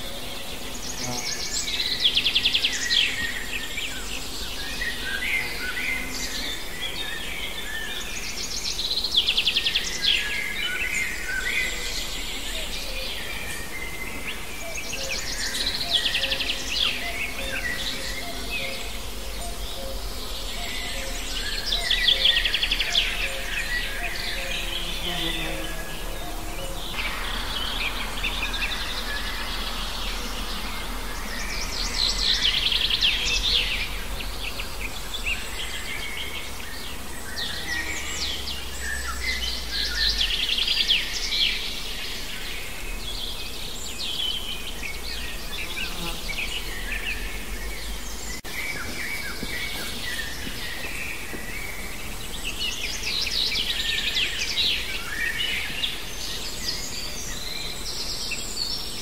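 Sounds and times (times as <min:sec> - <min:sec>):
songbirds trilling: 0:00.0 - 0:59.0
steady outdoor hum: 0:00.0 - 0:59.0.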